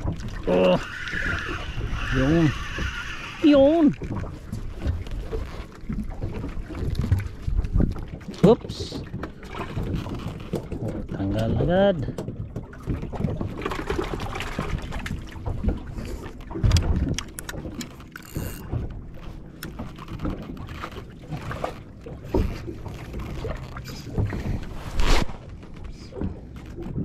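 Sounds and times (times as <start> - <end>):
water slapping boat hull: 0.0 - 27.0
fishing tackle clicks and knocks: 16.5 - 24.4.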